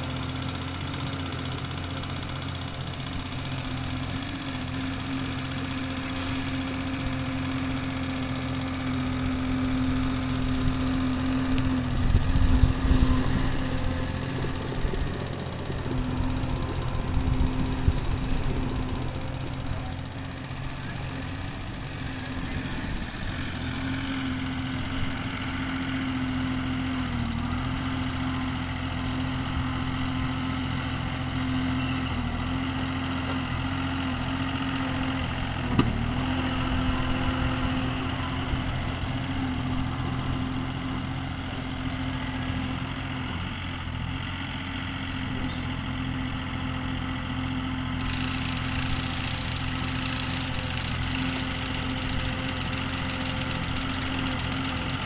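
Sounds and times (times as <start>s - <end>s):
excavator diesel engine running: 0.0s - 55.0s
hiss: 21.3s - 22.3s.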